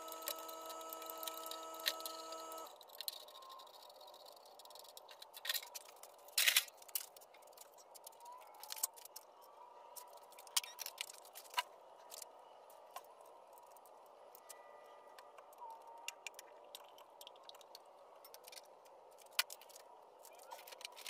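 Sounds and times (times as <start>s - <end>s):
metal parts clicking and knocking: 0.0s - 9.3s
metal parts clattering: 5.1s - 7.7s.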